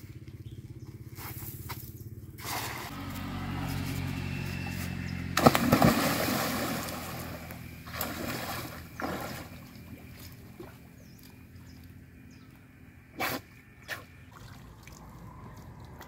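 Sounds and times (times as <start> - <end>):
water splashing and churning: 2.4 - 3.8, 4.7 - 12.0, 13.2 - 16.0.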